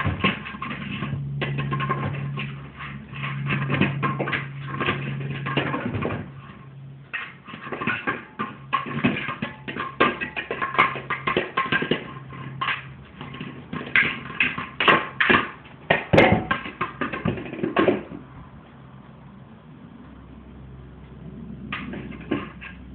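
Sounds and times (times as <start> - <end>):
low steady hum: 0.0 - 22.9.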